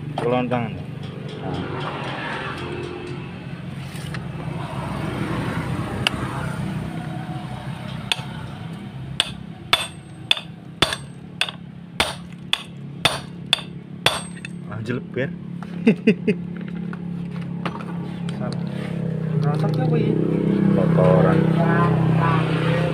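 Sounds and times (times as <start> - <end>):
hammer striking metal punch: 7.9 - 8.6, 9.2 - 14.6.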